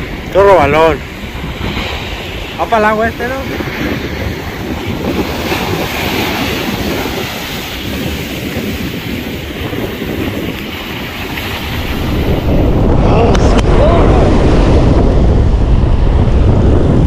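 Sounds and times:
surf rushing on beach: 0.0 - 17.0
wind buffeting microphone: 0.0 - 17.0.

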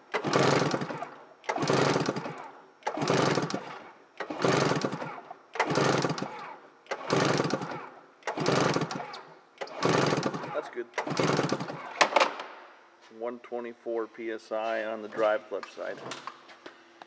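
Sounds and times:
engine cranked by recoil starter: 0.0 - 12.4.

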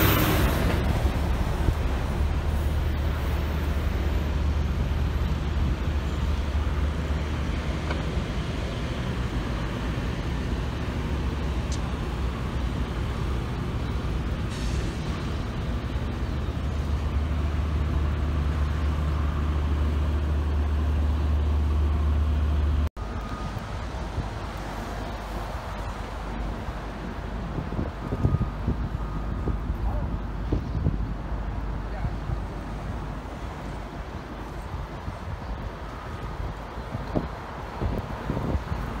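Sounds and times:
vehicle engine rumble: 0.0 - 39.0.

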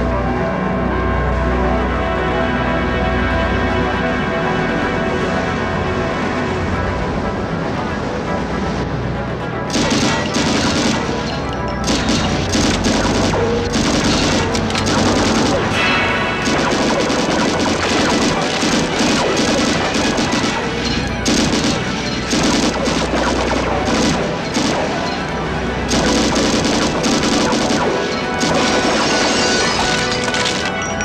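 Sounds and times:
machine gun firing: 9.7 - 25.3, 25.9 - 30.8.

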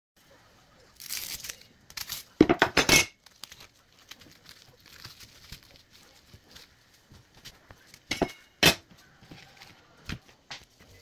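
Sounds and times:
cling film crinkling and tearing: 0.8 - 2.4, 3.2 - 8.1
plastic film rustling: 0.9 - 2.4, 3.2 - 8.1.

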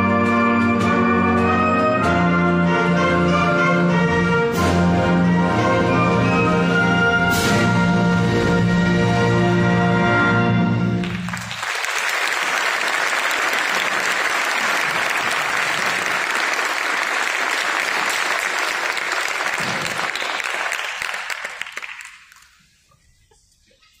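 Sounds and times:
audience applauding: 11.0 - 22.7.

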